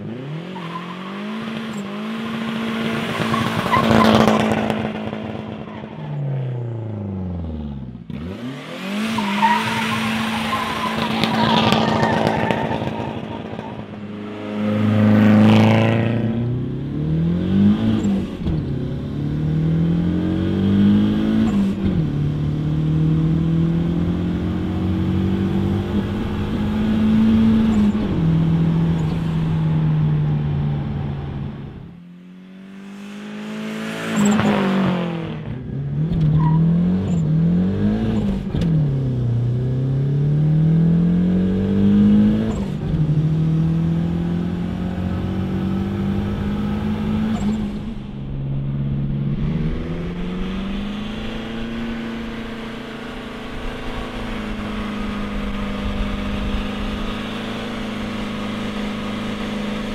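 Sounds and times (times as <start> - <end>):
car engine accelerating through gears: 0.0 - 59.9
car passing at speed: 8.4 - 18.1.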